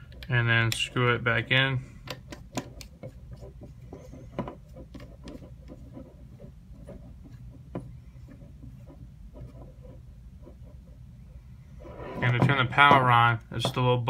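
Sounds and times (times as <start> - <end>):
threaded cap clicking and scraping: 0.0 - 11.0.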